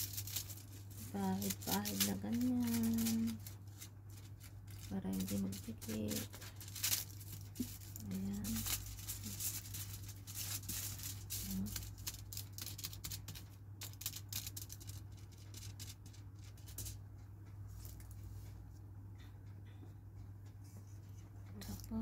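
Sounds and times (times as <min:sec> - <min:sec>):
brush crinkling over foil: 0:00.0 - 0:17.0
steady low hum: 0:00.0 - 0:22.0.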